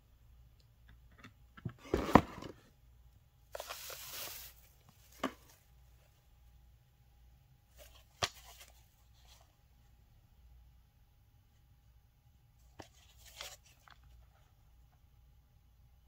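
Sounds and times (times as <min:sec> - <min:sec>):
cardboard and paper rustling: 0:03.5 - 0:05.6, 0:12.7 - 0:14.4.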